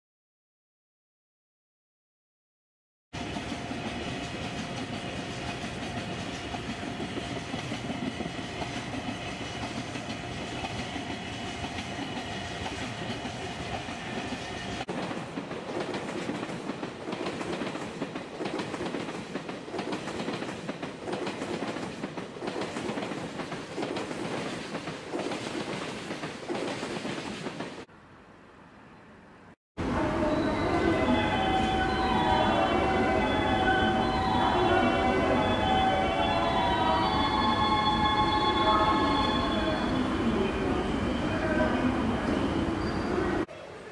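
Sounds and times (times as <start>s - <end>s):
freight train rumbling: 3.2s - 27.9s, 29.8s - 43.6s
train wheels clattering: 3.2s - 27.9s
crossing warning bell: 29.9s - 40.1s.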